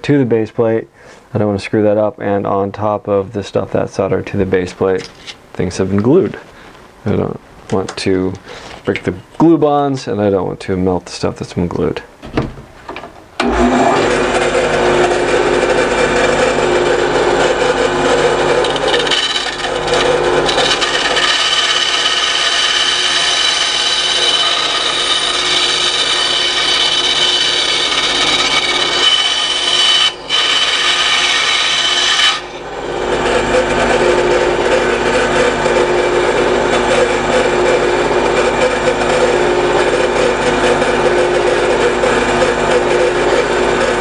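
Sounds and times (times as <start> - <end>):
band saw cutting brass: 13.4 - 44.0
band saw running: 13.4 - 44.0.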